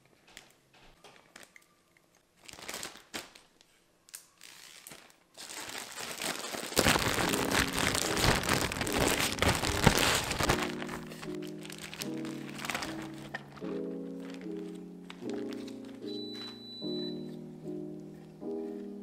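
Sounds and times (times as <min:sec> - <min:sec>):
plastic bag crinkling: 0:02.4 - 0:16.6
potato sticks rattling in bag: 0:04.4 - 0:16.0.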